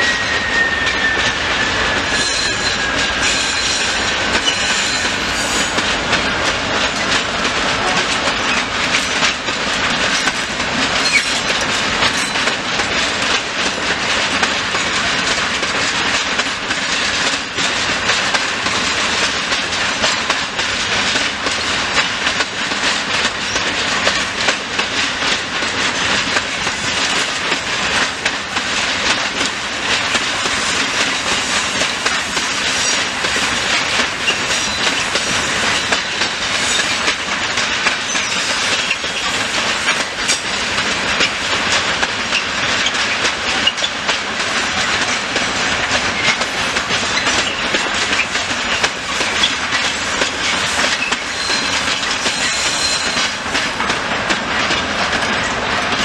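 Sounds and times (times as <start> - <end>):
high wheel squeal: 0.0 - 5.8, 50.4 - 53.3
train wheels clattering over rails: 0.0 - 56.0.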